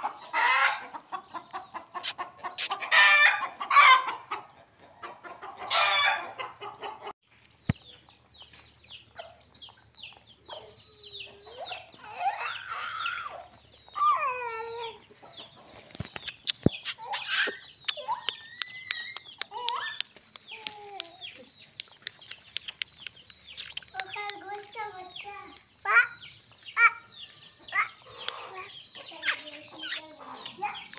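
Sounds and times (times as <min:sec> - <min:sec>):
chickens clucking: 0:00.0 - 0:30.9
chicks peeping: 0:00.0 - 0:30.9
sharp clicks: 0:15.9 - 0:24.7.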